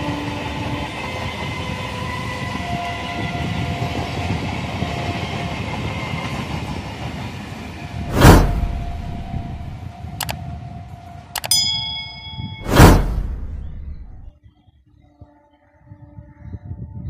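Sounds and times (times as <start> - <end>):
train wheels rumbling on rails: 0.0 - 10.4.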